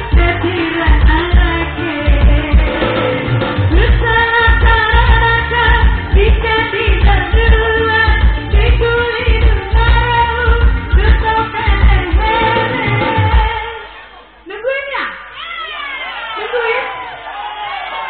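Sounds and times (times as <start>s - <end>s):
heavy bass beat: 0.0s - 13.6s.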